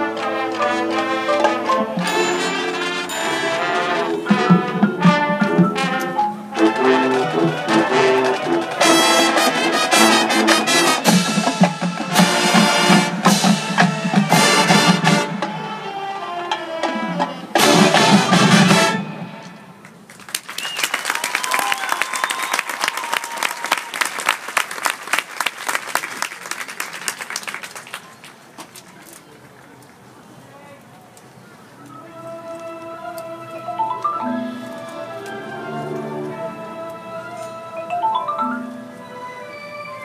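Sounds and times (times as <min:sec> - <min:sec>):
marching band playing: 0:00.0 - 0:20.1, 0:33.7 - 0:40.0
crowd applauding: 0:19.8 - 0:29.0.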